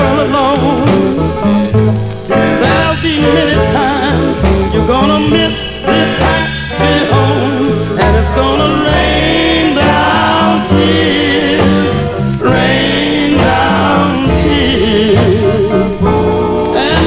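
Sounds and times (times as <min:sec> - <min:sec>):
band with bass line: 0:00.0 - 0:17.0
vocal group singing: 0:00.0 - 0:17.0.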